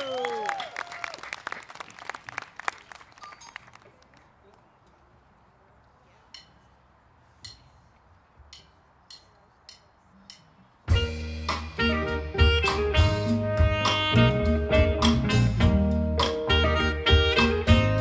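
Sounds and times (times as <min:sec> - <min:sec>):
audience applause: 0:00.0 - 0:04.3.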